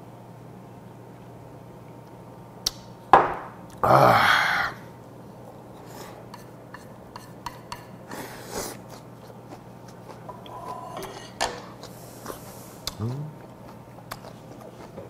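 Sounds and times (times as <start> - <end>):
dish set down on table: 3.1 - 3.6
chopsticks tapping ceramic dishes: 6.3 - 8.0.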